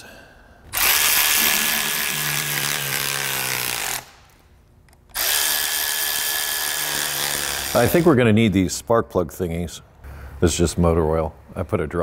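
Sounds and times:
cordless electric ratchet running: 0.7s - 4.2s, 5.1s - 8.1s.

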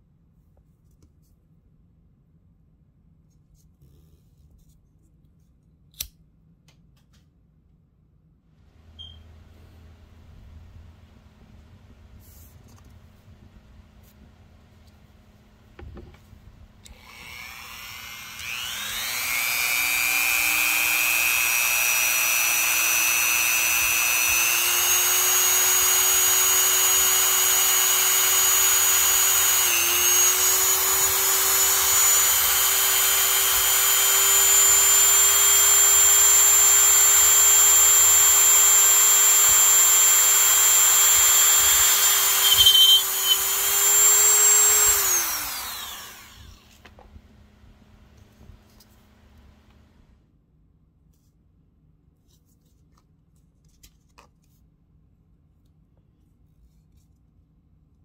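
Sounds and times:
power tool motor whining: 16.9s - 46.8s.

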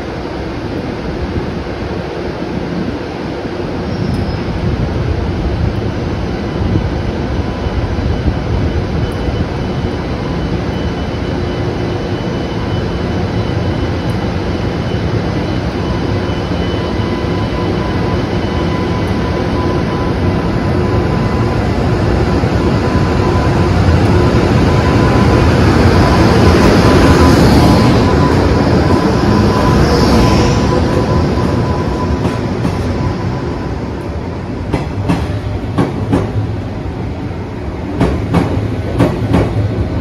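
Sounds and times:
electric locomotive rumbling: 0.0s - 40.0s.

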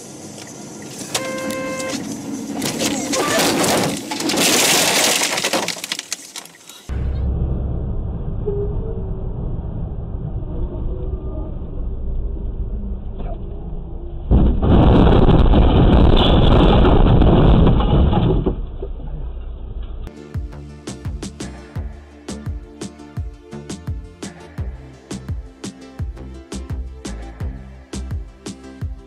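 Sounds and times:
vehicle road and engine rumble: 0.0s - 4.4s.

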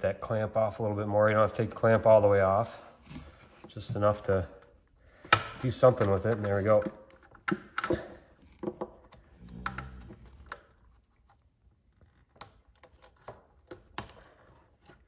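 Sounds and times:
hands clicking and tapping on parts: 3.6s - 11.4s, 12.1s - 15.0s.

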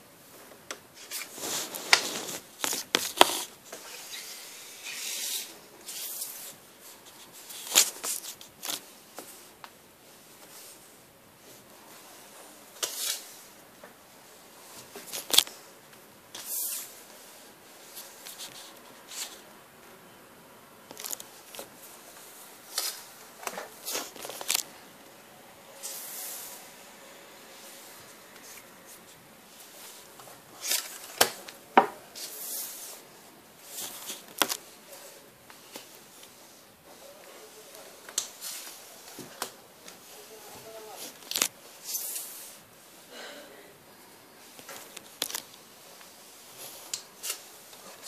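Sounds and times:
trading cards rustling: 22.7s - 24.7s.

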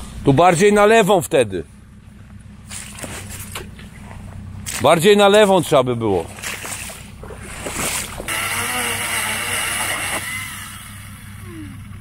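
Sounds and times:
chainsaw cutting wood: 8.2s - 12.0s.

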